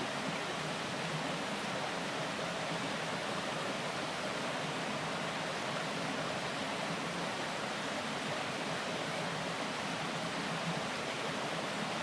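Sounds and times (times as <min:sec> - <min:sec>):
stream babbling over rocks: 0:00.0 - 0:12.0.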